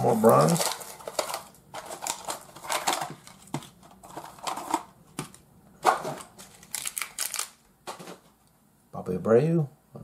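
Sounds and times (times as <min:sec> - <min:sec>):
packaging being torn and crinkled: 0:00.0 - 0:03.5, 0:06.2 - 0:07.6.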